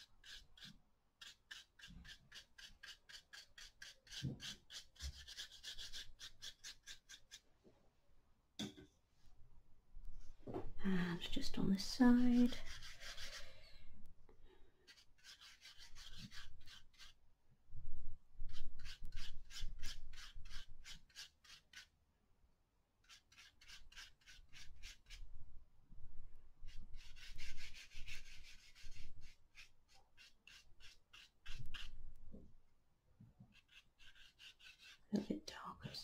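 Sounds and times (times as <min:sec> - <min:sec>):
paintbrush scratching on paper: 0:00.0 - 0:07.4, 0:11.4 - 0:13.5, 0:14.9 - 0:17.2, 0:18.4 - 0:21.9, 0:23.0 - 0:25.3, 0:26.6 - 0:32.0, 0:33.5 - 0:35.5.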